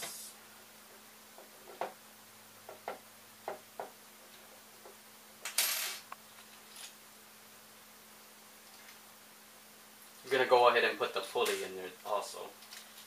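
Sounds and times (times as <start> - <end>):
small parts clicking and clinking: 12.6 - 13.0.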